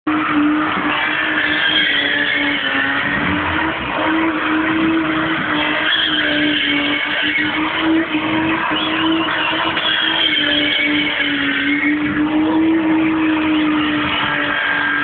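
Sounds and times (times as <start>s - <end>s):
car engine at high revs: 0.1s - 15.0s
tyres squealing on asphalt: 0.1s - 15.0s.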